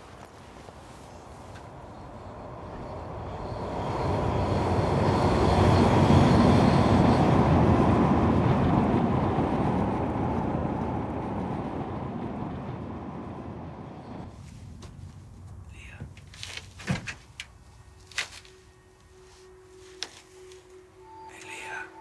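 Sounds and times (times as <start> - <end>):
light-rail train passing: 0.0 - 16.6, 17.3 - 22.0
faint steady whine: 13.9 - 22.0.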